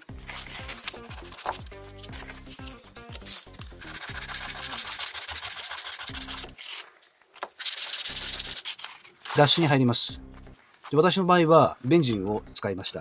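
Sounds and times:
background music: 0:00.0 - 0:06.8, 0:07.8 - 0:13.0
sandpaper rasping on handle: 0:00.1 - 0:06.8, 0:07.6 - 0:09.7.

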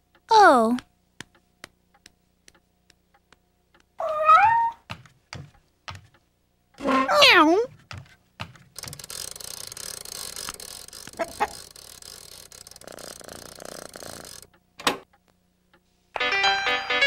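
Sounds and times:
scratchy rattling noise: 0:08.7 - 0:14.5.

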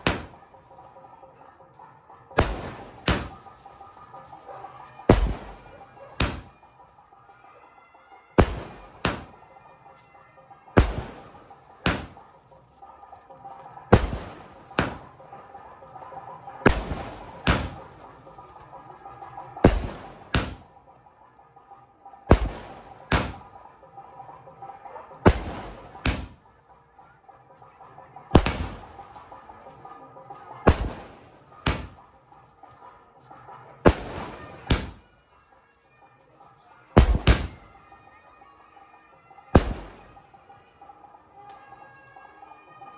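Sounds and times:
firework bangs: 0:00.0 - 0:06.9, 0:08.4 - 0:09.6, 0:10.7 - 0:20.7, 0:22.2 - 0:26.8, 0:27.6 - 0:35.1, 0:37.0 - 0:37.8, 0:39.5 - 0:40.3.

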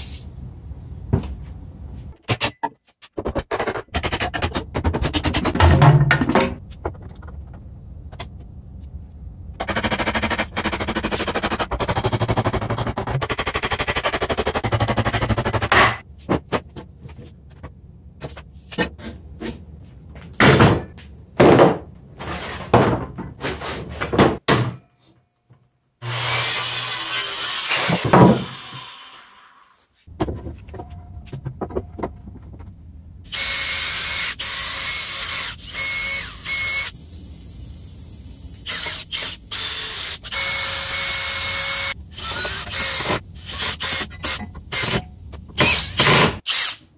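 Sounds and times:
cordless drill driving a screw: 0:33.3 - 0:36.9, 0:38.7 - 0:44.9, 0:45.6 - 0:46.8.

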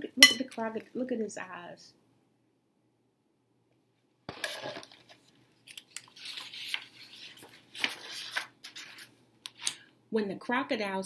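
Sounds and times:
paper page rustling: 0:04.3 - 0:09.8.

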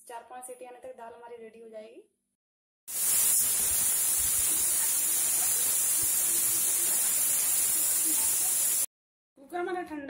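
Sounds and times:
pressure cooker steam hiss: 0:02.9 - 0:08.9.

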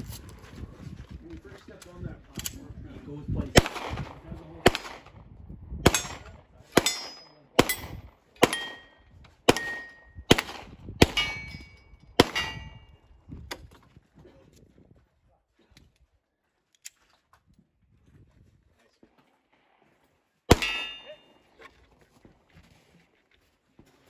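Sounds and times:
pistol shots: 0:03.6 - 0:05.2, 0:05.8 - 0:11.6, 0:12.2 - 0:12.8, 0:20.5 - 0:21.3
steel plate ringing clang: 0:06.8 - 0:10.1, 0:11.1 - 0:12.9, 0:20.5 - 0:21.4.

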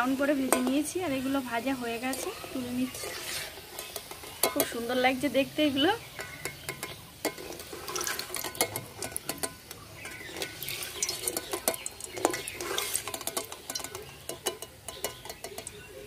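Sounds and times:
metal spoon scraping a pan: 0:00.0 - 0:16.0
oil frying hiss: 0:00.0 - 0:16.0.

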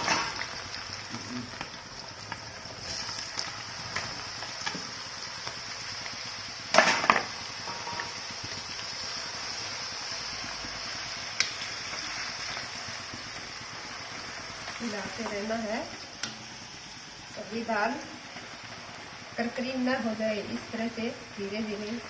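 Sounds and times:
deep-frying sizzle in oil: 0:00.0 - 0:22.0.

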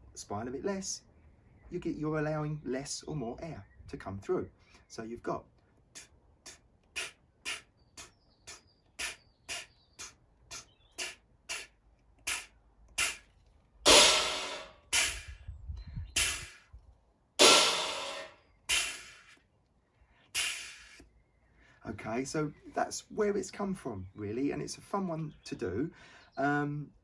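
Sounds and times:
beatboxed hissy cymbal strokes: 0:06.0 - 0:11.7, 0:12.3 - 0:13.2, 0:17.4 - 0:19.3, 0:20.4 - 0:21.0
beatboxed trashy crashes: 0:06.0 - 0:13.3, 0:13.9 - 0:15.3, 0:17.4 - 0:19.3.

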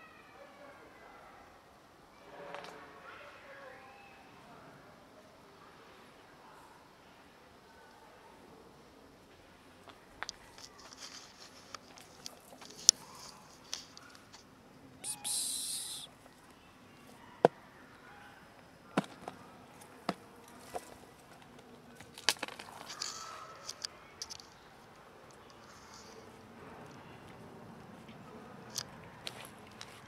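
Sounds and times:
hissing rustle: 0:15.0 - 0:16.1.

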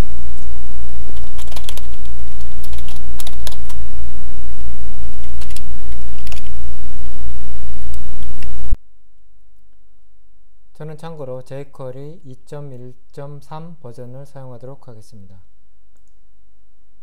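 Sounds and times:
loud steady low hum: 0:00.0 - 0:14.6
computer keyboard clicks: 0:01.2 - 0:02.0, 0:02.6 - 0:03.7, 0:05.4 - 0:05.6, 0:06.2 - 0:06.5.

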